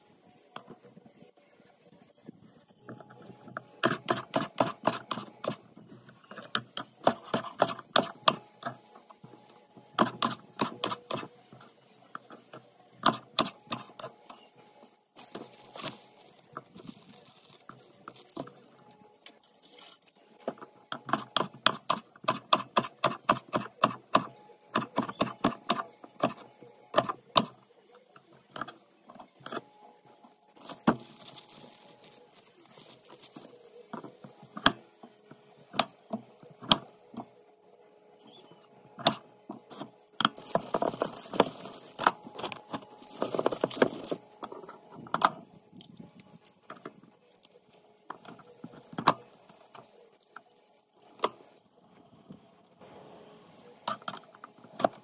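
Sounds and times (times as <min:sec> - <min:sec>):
plastic bag rustling: 0:15.2 - 0:18.8, 0:30.6 - 0:34.6, 0:40.4 - 0:44.9.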